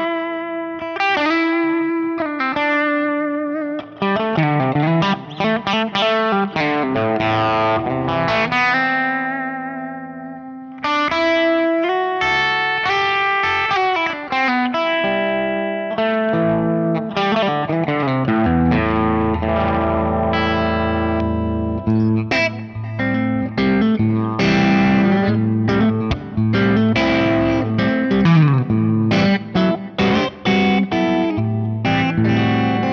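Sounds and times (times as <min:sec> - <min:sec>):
overdriven electric guitar: 0:00.0 - 0:32.9.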